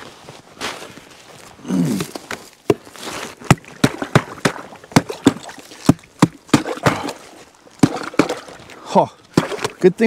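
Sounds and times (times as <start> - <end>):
axe chopping into ice: 3.4 - 7.2.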